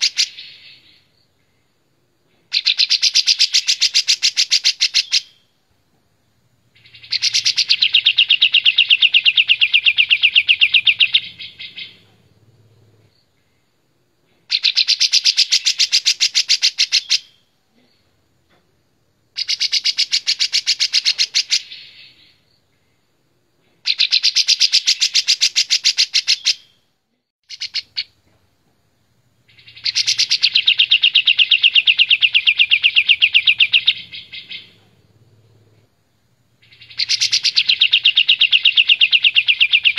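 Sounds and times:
bulbul singing rapid repeated notes: 0:06.8 - 0:12.0, 0:29.5 - 0:34.9, 0:36.6 - 0:39.9.

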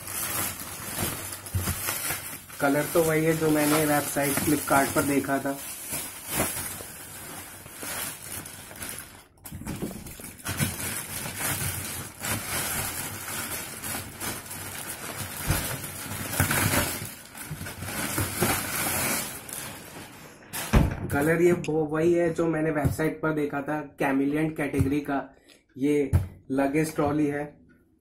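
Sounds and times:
plastic wrapping crinkling: 0:00.0 - 0:20.8.

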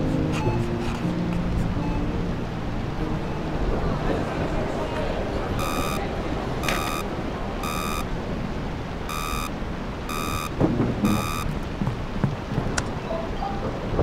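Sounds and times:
electronic warning beeps: 0:05.6 - 0:06.0, 0:06.6 - 0:07.0, 0:07.6 - 0:08.1, 0:09.1 - 0:09.5, 0:10.1 - 0:11.5.

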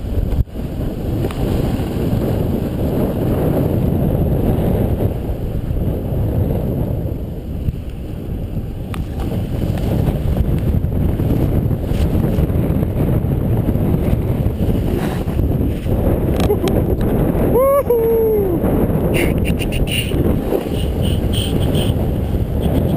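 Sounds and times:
wind rumbling on microphone: 0:00.0 - 0:22.9
snowboard running over snow: 0:08.8 - 0:17.4.

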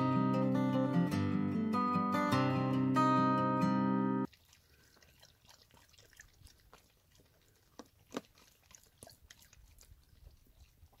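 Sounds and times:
dog lapping water: 0:04.3 - 0:11.0.

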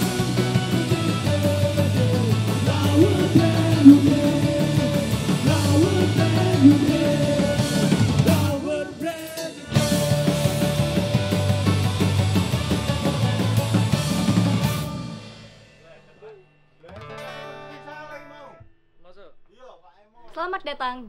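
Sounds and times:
cymbal beat: 0:00.0 - 0:08.8
person singing: 0:00.0 - 0:11.4
punk band playing live: 0:00.0 - 0:15.6.

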